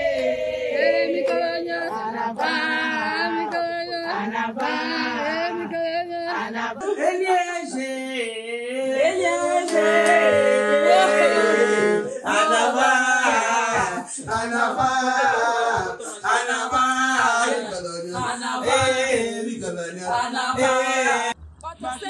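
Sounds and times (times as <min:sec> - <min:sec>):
music with singing voices: 0:00.0 - 0:22.0.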